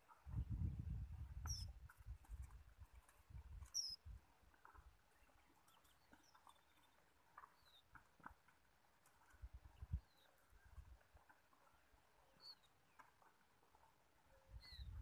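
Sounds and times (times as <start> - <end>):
wind buffeting microphone: 0.2 - 4.2, 9.4 - 11.0, 14.5 - 15.0
bird chirps: 1.4 - 1.7, 3.6 - 4.0, 5.1 - 7.9, 12.2 - 13.0, 14.3 - 15.0.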